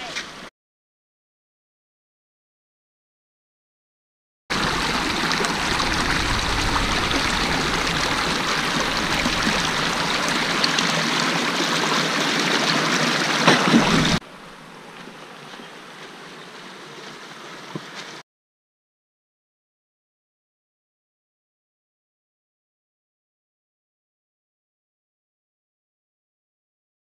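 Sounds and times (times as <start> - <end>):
stream running over rocks: 4.5 - 18.2.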